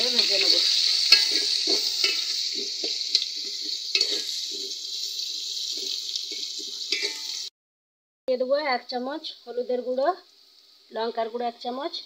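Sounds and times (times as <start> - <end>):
onions sizzling in hot oil: 0.0 - 7.5, 8.4 - 12.0
metal spoon scraping pot: 0.1 - 7.5.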